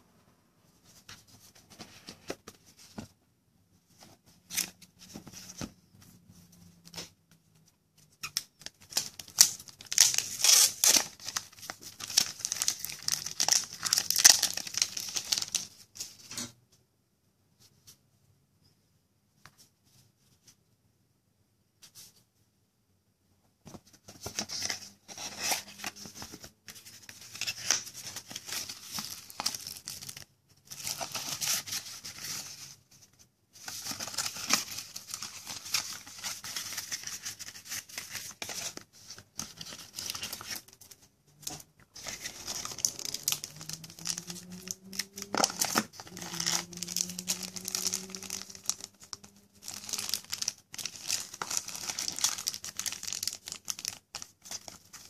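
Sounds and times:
plastic wrapping crinkling: 0:08.3 - 0:15.8, 0:24.2 - 0:32.6, 0:33.7 - 0:55.0.

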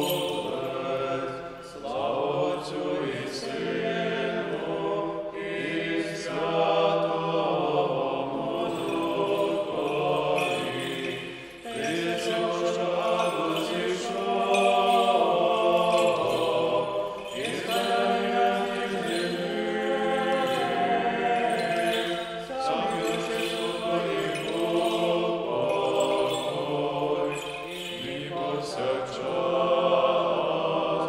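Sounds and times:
men chanting a hymn: 0:00.0 - 0:31.0.

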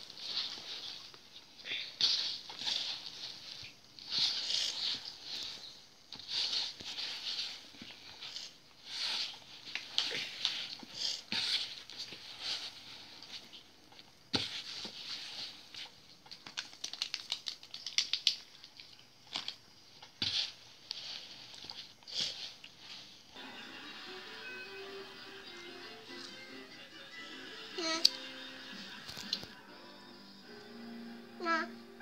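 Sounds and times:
hand rubbing dough: 0:00.0 - 0:16.2.

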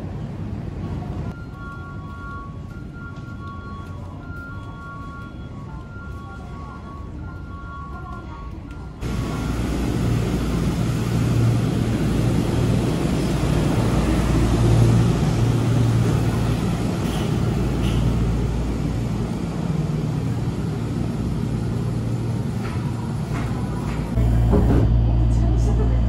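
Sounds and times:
monorail train rumbling: 0:00.0 - 0:26.0.

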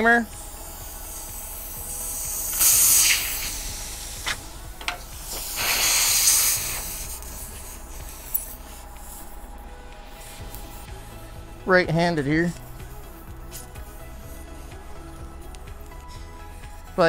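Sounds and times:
air hissing from tire: 0:00.0 - 0:17.0.

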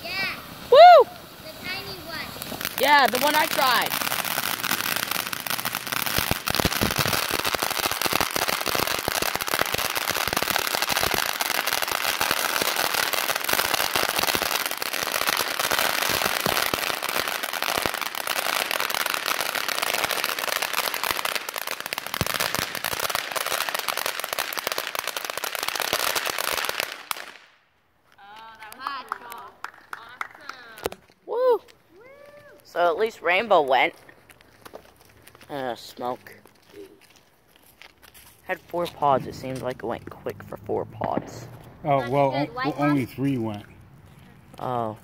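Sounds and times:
fountain fireworks hissing and crackling: 0:00.0 - 0:27.5, 0:28.1 - 0:45.0.

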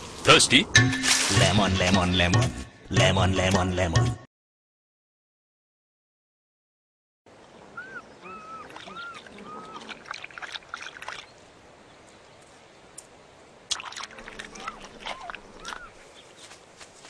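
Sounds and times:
rustling in grass: 0:00.0 - 0:02.1, 0:08.3 - 0:17.0
cheetah chirping: 0:07.8 - 0:10.2, 0:14.2 - 0:16.3.

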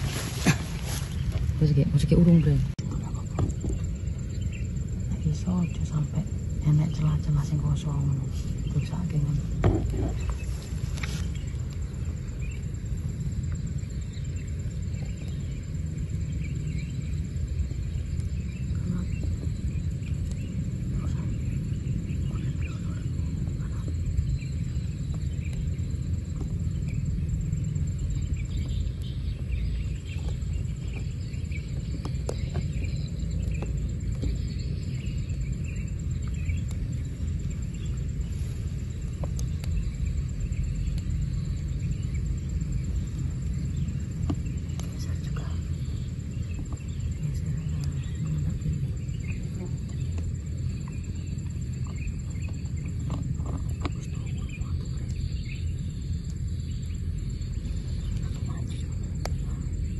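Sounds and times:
faint bird chirps: 0:00.0 - 0:59.9
low rumble: 0:00.0 - 0:59.9.

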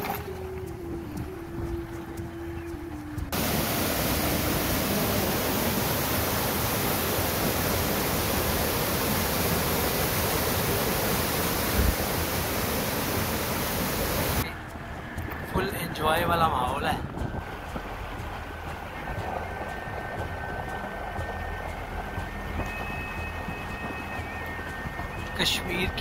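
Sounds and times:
waterfall rushing over rocks: 0:03.3 - 0:14.5.

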